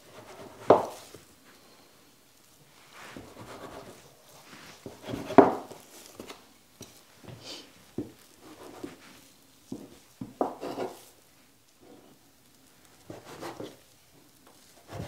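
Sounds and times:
bench scraper chopping dough: 0:00.1 - 0:01.0, 0:04.9 - 0:05.7.

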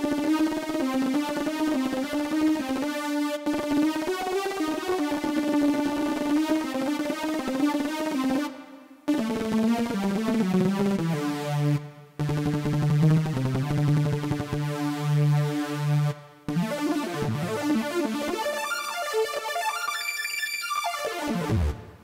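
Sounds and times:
synthesizer fast repeated notes: 0:00.0 - 0:22.0.

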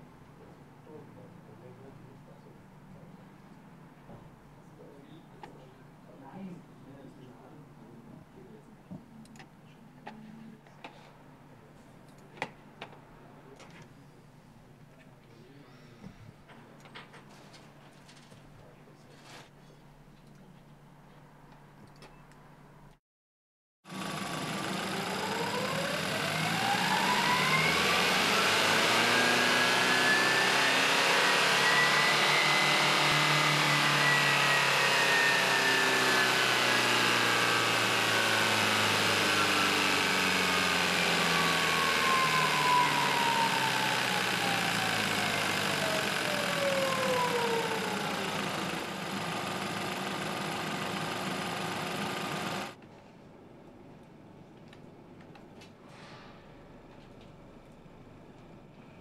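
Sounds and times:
petrol engine revving: 0:23.9 - 0:52.8.

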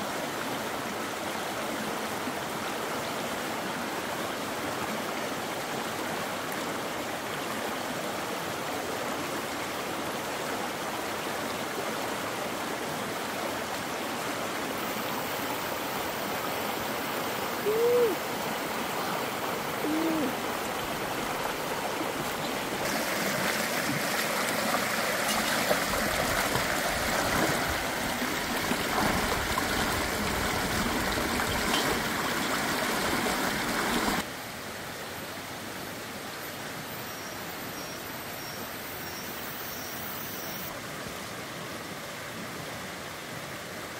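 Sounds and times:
running water: 0:00.0 - 0:34.8
short hooting calls: 0:17.5 - 0:18.4, 0:19.8 - 0:20.5.

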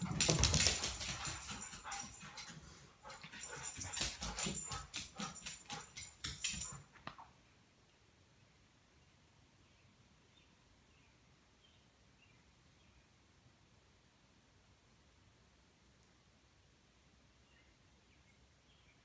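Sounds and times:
dogs barking and whining: 0:00.0 - 0:07.0.

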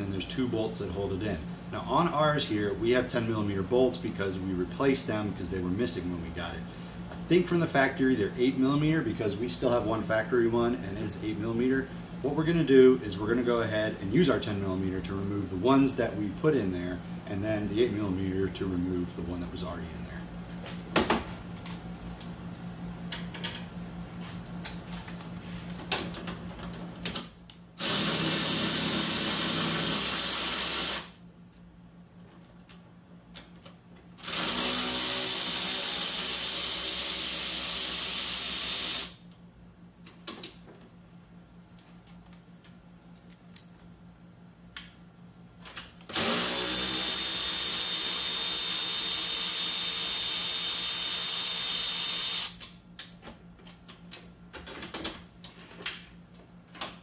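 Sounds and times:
cordless power tool motor whirring: 0:27.8 - 0:31.1, 0:34.2 - 0:39.2, 0:46.1 - 0:52.6.

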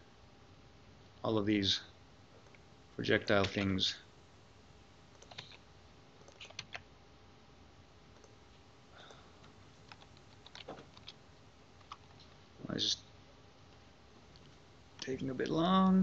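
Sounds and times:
faint keyboard keystrokes: 0:03.3 - 0:03.8, 0:05.1 - 0:05.6, 0:06.2 - 0:06.8, 0:09.0 - 0:11.2, 0:11.8 - 0:12.4.

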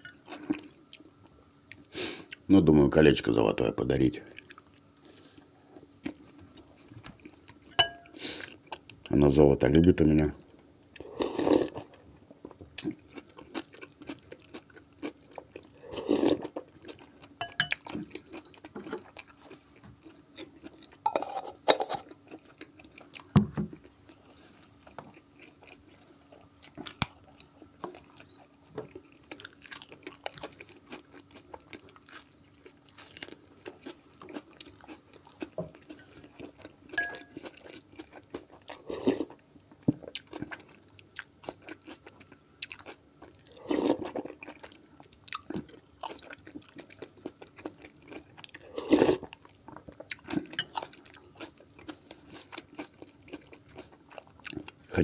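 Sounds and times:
chewing and crunching: 0:04.2 - 0:09.1, 0:10.4 - 0:55.0
slurping soup: 0:11.0 - 0:11.9, 0:48.6 - 0:49.3.

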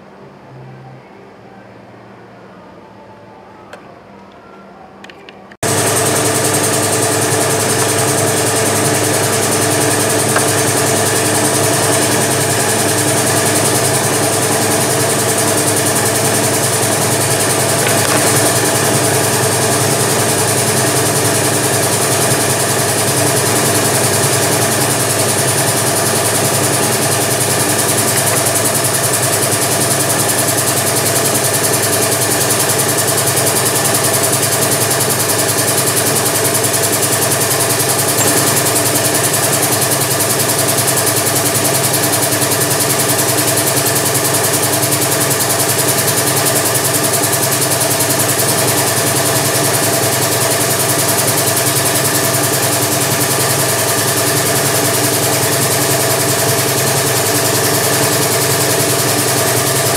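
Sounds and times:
electric motor humming: 0:05.6 - 0:31.9, 0:37.7 - 0:41.8.

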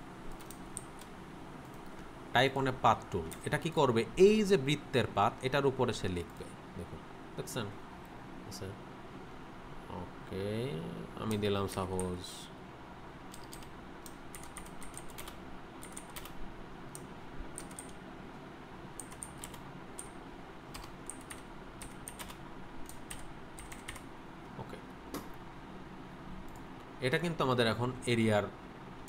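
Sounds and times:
computer keyboard typing: 0:00.3 - 0:02.0, 0:13.3 - 0:18.0, 0:19.0 - 0:24.1.

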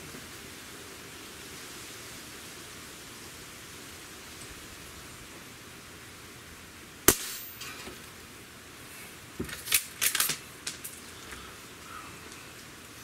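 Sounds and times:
air rifle shot crack: 0:07.1 - 0:07.6.

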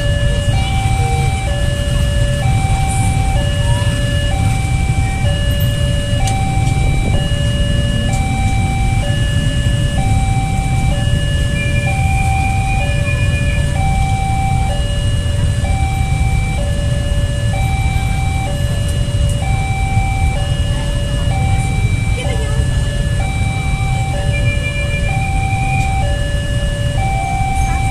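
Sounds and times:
traffic rumble: 0:00.0 - 0:27.9
two-tone crossing alarm: 0:00.0 - 0:27.9.

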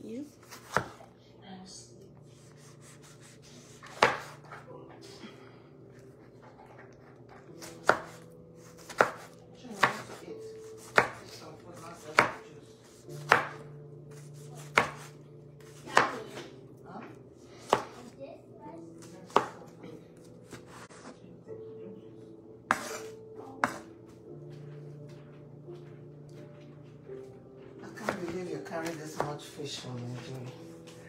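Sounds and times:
knife chopping on wooden board: 0:00.4 - 0:01.0, 0:02.4 - 0:04.5, 0:07.6 - 0:16.4, 0:17.6 - 0:18.0, 0:19.0 - 0:19.7, 0:22.7 - 0:23.9, 0:28.0 - 0:29.3.

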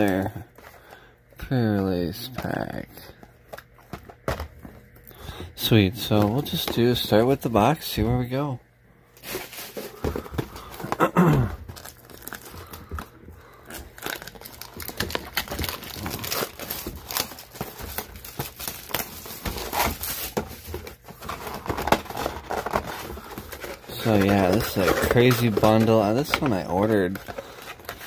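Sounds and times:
plastic packaging crinkling and tearing: 0:09.2 - 0:28.0.

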